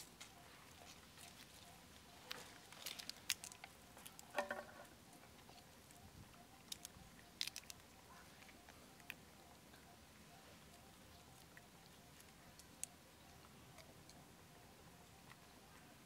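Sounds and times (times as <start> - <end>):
monkeys handling food: 0.0 - 4.8, 6.6 - 9.2.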